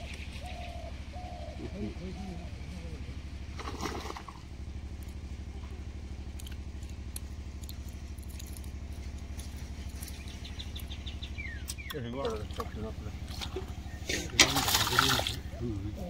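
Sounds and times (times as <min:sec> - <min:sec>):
small engine running: 0:00.0 - 0:16.0.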